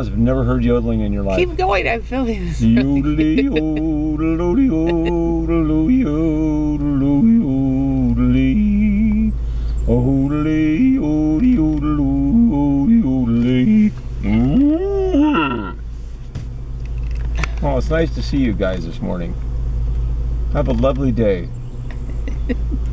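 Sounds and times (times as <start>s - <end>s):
person yodeling: 2.6s - 9.3s, 10.2s - 15.8s.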